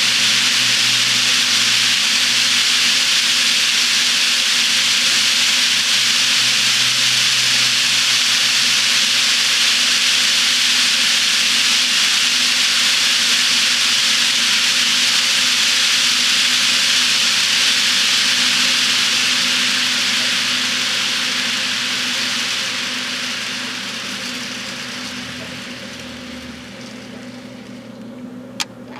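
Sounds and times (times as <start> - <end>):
model train wheels rolling on track: 0.0 - 28.9
low hum: 18.5 - 28.9.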